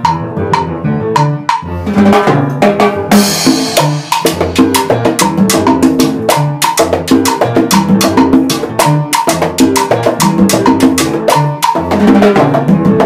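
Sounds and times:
small band playing latin dance music: 0.0 - 13.0
timbales and hand percussion: 3.2 - 13.0.

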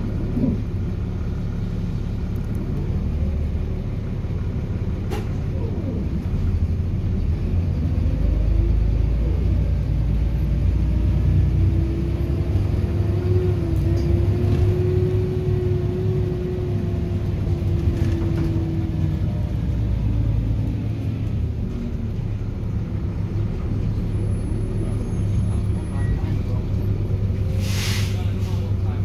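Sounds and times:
bus diesel engine rumble: 0.0 - 29.0.

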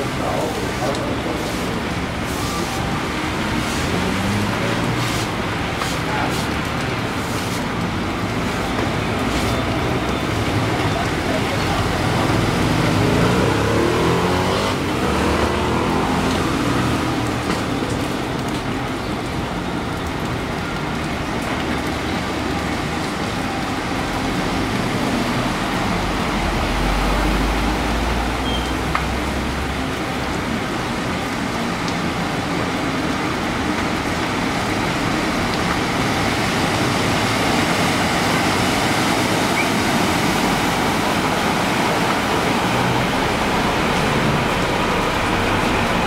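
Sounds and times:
rain hissing: 0.0 - 22.7
running floodwater: 0.0 - 46.0
vehicles splashing through water: 0.0 - 46.0.

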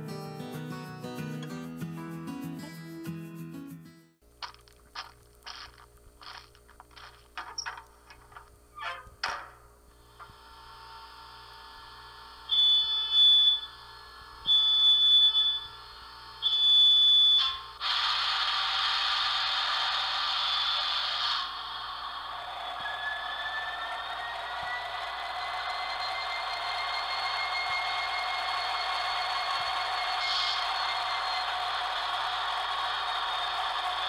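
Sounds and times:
loud hiss: 17.8 - 23.9, 29.6 - 34.0
rising whine: 19.4 - 34.0.

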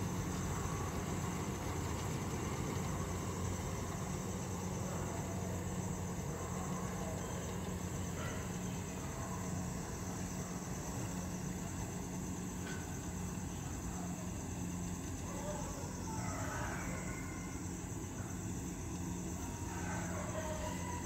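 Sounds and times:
diesel engine humming: 0.0 - 16.2.

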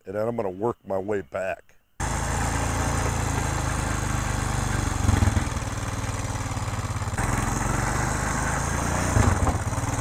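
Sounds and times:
atv engine running: 2.0 - 10.0.

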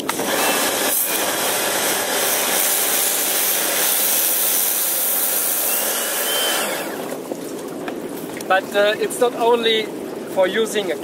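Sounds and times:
pressure washer spraying water: 0.0 - 7.2.

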